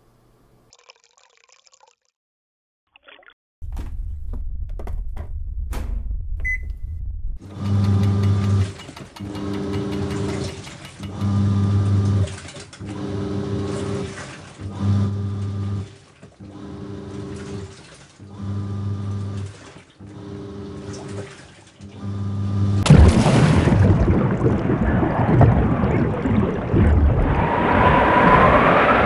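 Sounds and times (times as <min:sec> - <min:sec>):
washing machine beep: 0:06.4 - 0:06.8, 0:07.5 - 0:12.2
clicks: 0:07.4 - 0:11.4
washing machine drum churning: 0:07.4 - 0:14.7.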